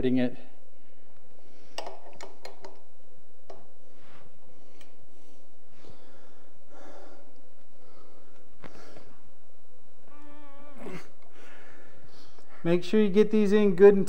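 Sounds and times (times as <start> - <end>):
breathing: 0.7 - 2.0, 3.8 - 9.3, 11.2 - 12.7.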